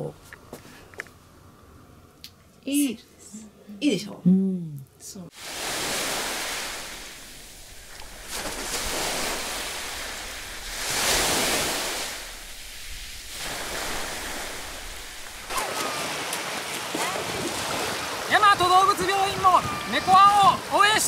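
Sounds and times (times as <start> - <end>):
sea surf washing on beach: 5.3 - 21.0
swimmer wading and splashing: 5.4 - 21.0.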